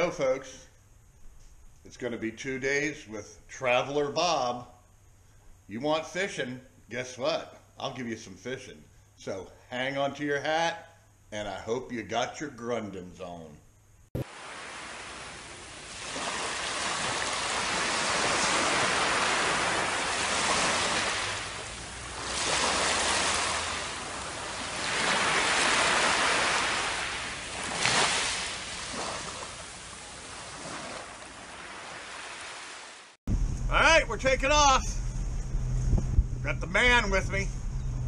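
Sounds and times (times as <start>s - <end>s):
ocean surf washing over sand: 14.2s - 33.2s.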